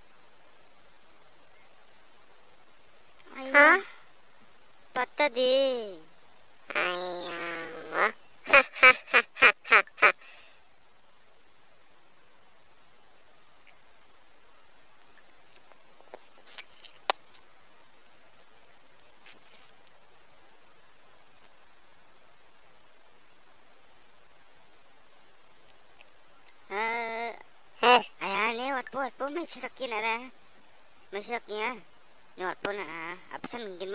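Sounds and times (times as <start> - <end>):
insect-like chirring: 1.4 - 10.8, 24.8 - 33.9.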